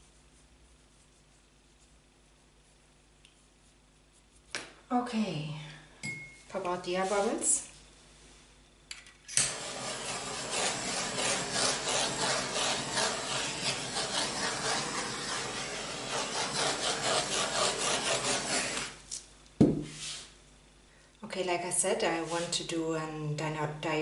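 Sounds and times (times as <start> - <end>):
butane torch hissing: 9.4 - 19.0.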